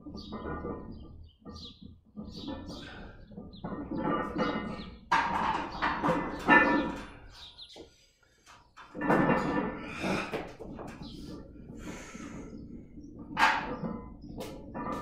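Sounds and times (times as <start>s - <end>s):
person breathing hard: 9.8s - 10.5s, 11.7s - 12.6s.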